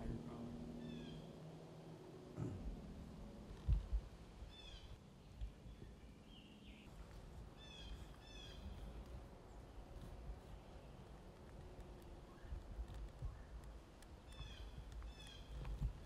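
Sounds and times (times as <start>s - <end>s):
songbird singing: 0.0s - 1.4s, 4.4s - 16.0s.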